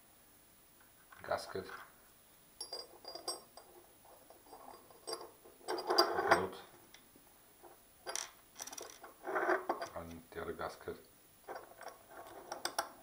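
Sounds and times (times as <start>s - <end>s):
metallic clicks and scraping: 7.6s - 10.2s, 11.5s - 13.0s.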